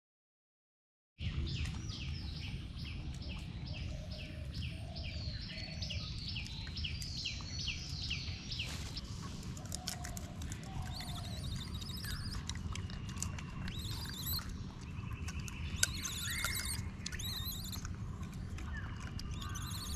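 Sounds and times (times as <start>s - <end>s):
steady low rumble: 1.2s - 19.9s
bird calling high slurred notes: 10.7s - 17.9s, 18.6s - 19.9s.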